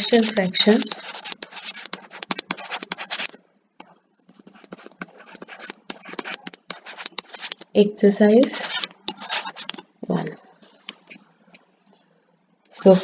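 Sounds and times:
stylus scratching on tablet: 0:00.0 - 0:07.7, 0:08.4 - 0:09.9.

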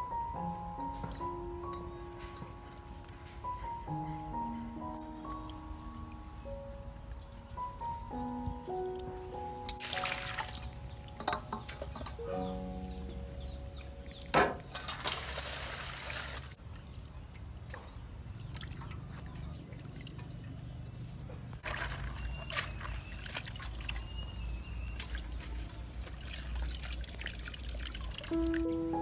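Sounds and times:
water splashing and dripping: 0:00.8 - 0:29.0
water pouring into metal basin: 0:09.8 - 0:12.2, 0:14.2 - 0:16.6, 0:26.0 - 0:28.8.

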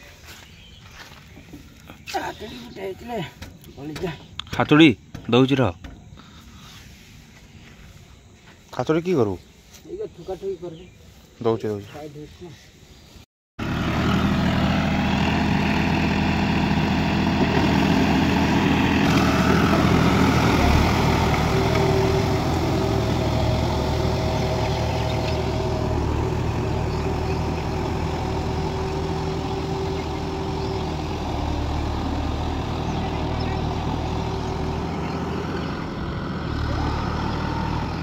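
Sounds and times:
tractor diesel engine under load: 0:13.6 - 0:38.0.

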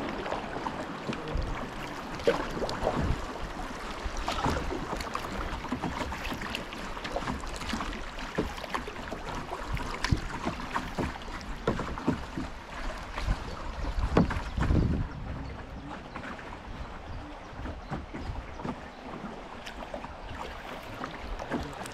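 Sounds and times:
flowing water rushing: 0:00.0 - 0:21.9
paddle splashes and knocks: 0:00.0 - 0:21.9.

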